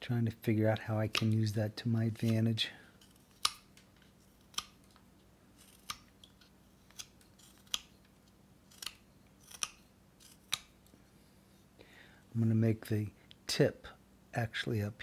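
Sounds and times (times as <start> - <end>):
knife slicing wood: 5.6 - 6.2, 8.7 - 10.7.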